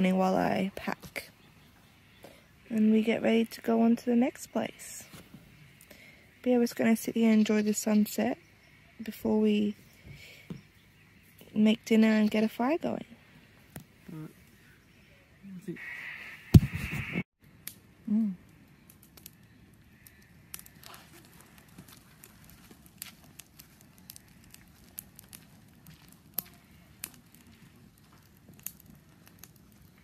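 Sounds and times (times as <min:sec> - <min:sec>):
campfire crackling: 0:00.0 - 0:30.0
short voice sound: 0:18.1 - 0:18.4.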